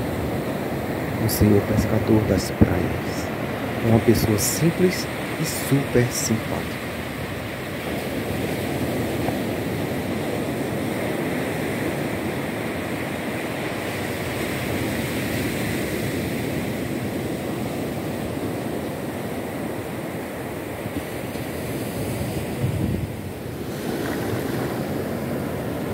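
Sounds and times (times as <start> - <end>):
small waves washing on beach: 0.0 - 25.9.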